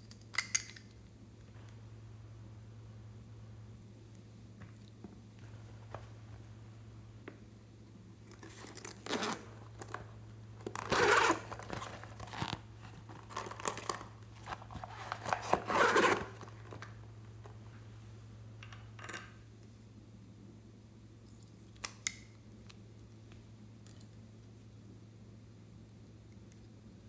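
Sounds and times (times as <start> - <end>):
plastic pouch crinkling: 10.7 - 16.9.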